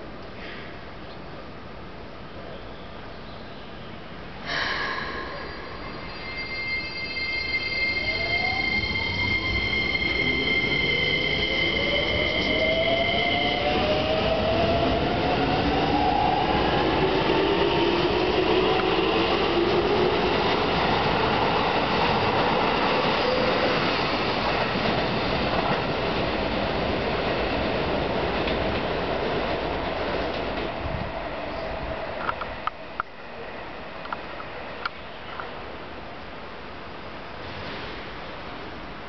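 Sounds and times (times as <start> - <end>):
high steady squeal: 4.6 - 14.7.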